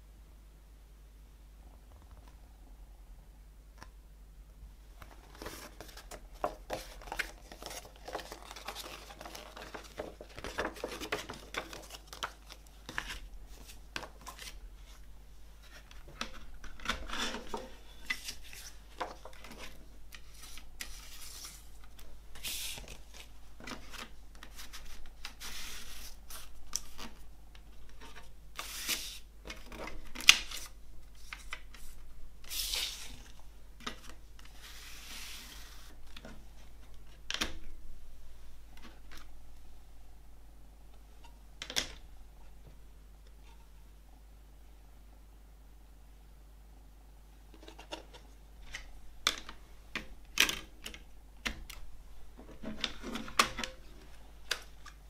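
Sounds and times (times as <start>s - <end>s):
paper rustling and crinkling: 5.0s - 37.6s.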